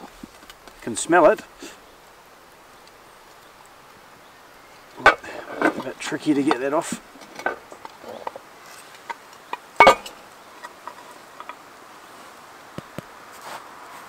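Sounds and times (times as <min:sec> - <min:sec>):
light metal clinks and scrapes: 0:05.0 - 0:11.6
loud metallic clank: 0:09.8 - 0:10.2.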